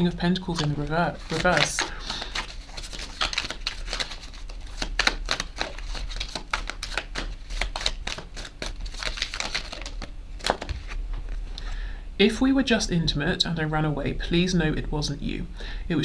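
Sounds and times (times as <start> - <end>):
cards being shuffled: 0.0 - 11.4.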